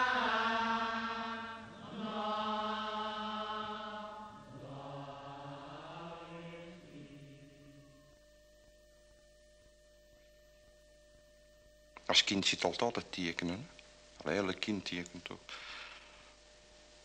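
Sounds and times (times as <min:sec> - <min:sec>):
person chanting wordless drone: 0:00.0 - 0:08.2.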